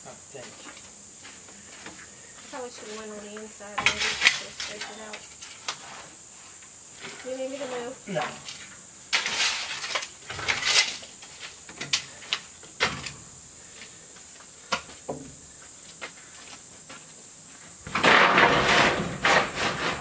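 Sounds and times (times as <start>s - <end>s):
rough scraping noise: 3.8s - 7.9s, 8.5s - 11.6s.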